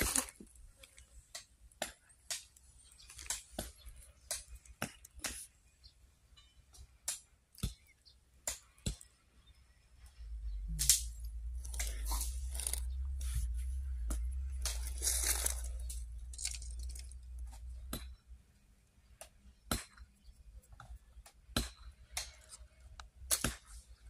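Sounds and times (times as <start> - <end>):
crackling crinkling rustle: 0.0 - 1.2, 10.8 - 17.7
steady low rumble: 10.0 - 18.6.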